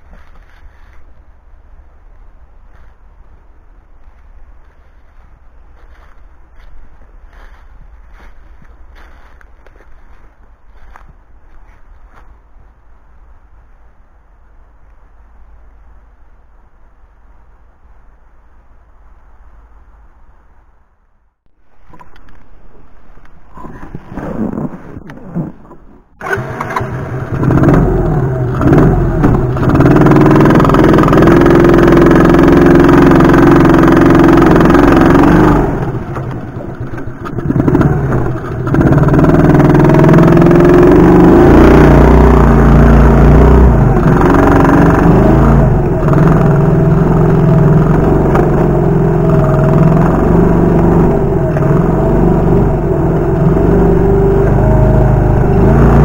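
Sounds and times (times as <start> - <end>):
small engine running under throttle: 26.2 - 56.0.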